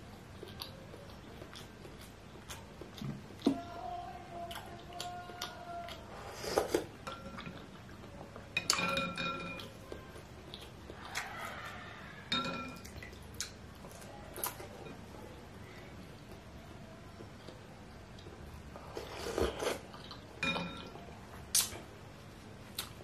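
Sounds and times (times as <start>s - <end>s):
mouth sounds of eating: 0.1s - 8.4s
cutlery clinking on ceramic bowl: 8.6s - 9.7s, 12.3s - 13.0s, 20.4s - 20.9s.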